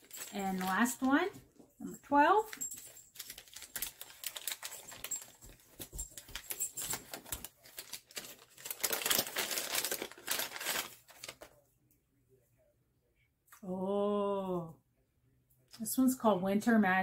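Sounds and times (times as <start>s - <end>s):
plastic wrapping crinkling: 0.0s - 1.3s, 2.4s - 11.5s.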